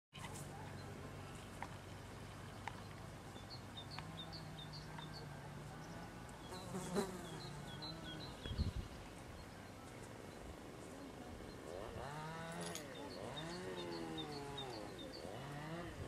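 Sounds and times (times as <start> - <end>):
flying insect buzzing: 6.5 - 8.2
small bird chirping: 11.4 - 15.7.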